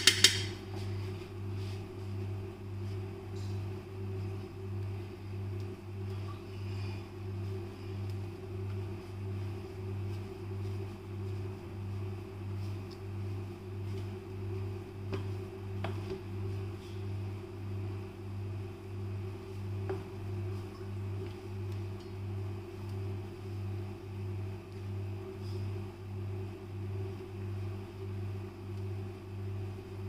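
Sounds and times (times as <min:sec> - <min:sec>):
fingers clicking on steel plate: 0:00.0 - 0:00.5
pulsing mechanical hum: 0:00.0 - 0:30.0.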